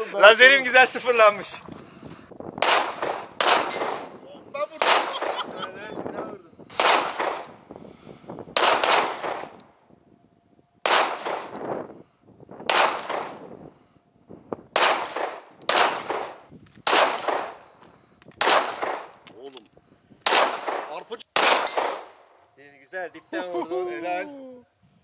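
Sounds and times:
pistol shots with echo: 0:02.6 - 0:04.2, 0:04.8 - 0:05.5, 0:06.7 - 0:07.7, 0:08.5 - 0:09.6, 0:10.8 - 0:11.6, 0:12.7 - 0:13.5, 0:14.7 - 0:17.7, 0:18.4 - 0:19.2, 0:20.2 - 0:22.2.

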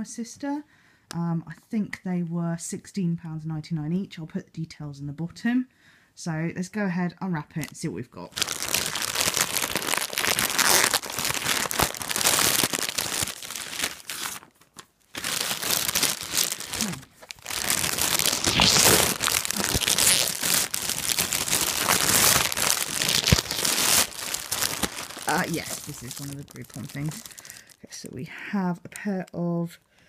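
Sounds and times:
plastic bag crinkling: 0:08.3 - 0:27.9.

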